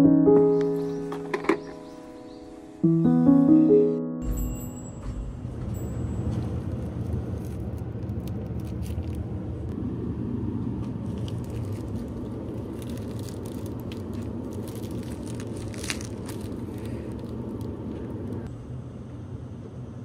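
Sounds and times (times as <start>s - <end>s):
low store ambience rumble: 4.2s - 20.0s
plastic packaging crinkling: 6.4s - 9.6s, 10.8s - 18.5s.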